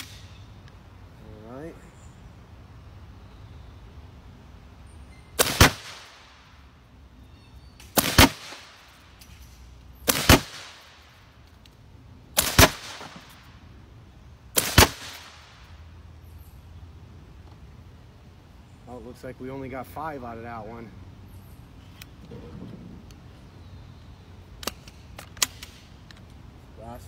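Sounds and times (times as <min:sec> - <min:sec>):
air rifle shots double crack: 0:00.0 - 0:00.4, 0:05.4 - 0:06.4, 0:07.8 - 0:09.2, 0:10.0 - 0:11.1, 0:12.4 - 0:13.5, 0:14.5 - 0:15.7.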